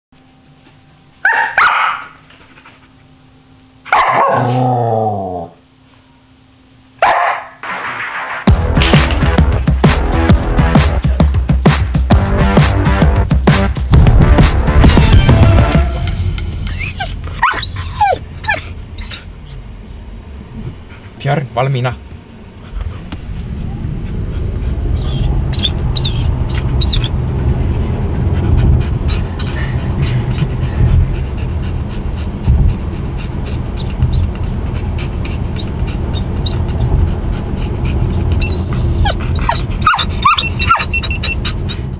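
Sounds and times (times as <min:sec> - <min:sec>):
dog barking: 0:01.2 - 0:02.2, 0:03.9 - 0:04.6, 0:07.0 - 0:07.6, 0:39.4 - 0:40.9
dog whining: 0:15.3 - 0:20.1, 0:24.9 - 0:27.2, 0:29.0 - 0:30.4, 0:33.4 - 0:37.2, 0:37.9 - 0:41.9
road and tyre rumble in car: 0:17.2 - 0:41.9
dog drawn-out call: 0:38.2 - 0:41.9.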